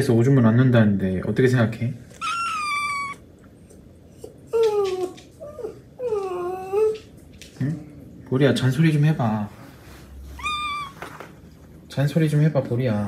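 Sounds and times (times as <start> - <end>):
pet whining: 2.0 - 7.4, 10.1 - 11.6.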